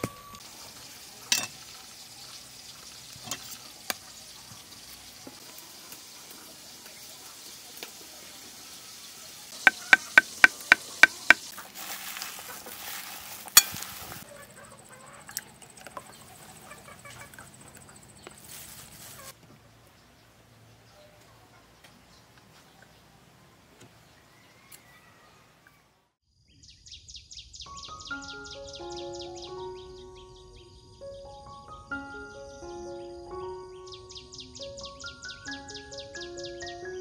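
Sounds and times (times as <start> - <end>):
knife chopping on wooden board: 9.7 - 11.4
scraping and handling noises: 9.7 - 14.2.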